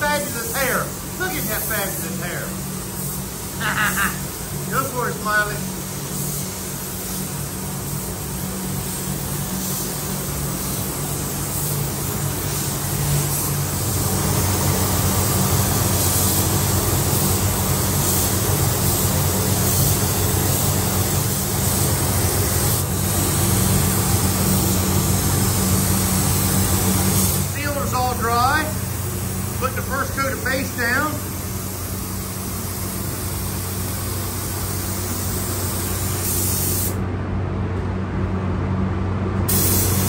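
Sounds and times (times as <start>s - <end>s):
paint spray gun hissing: 0.0s - 37.0s, 39.5s - 40.0s.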